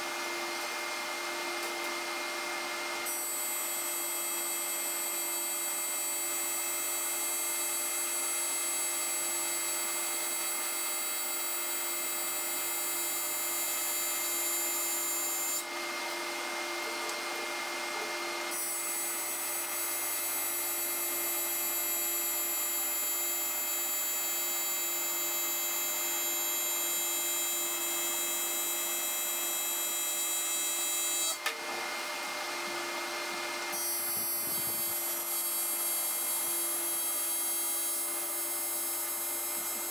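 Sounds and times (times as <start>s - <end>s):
welding arc buzzing: 3.0s - 15.7s, 33.7s - 39.9s.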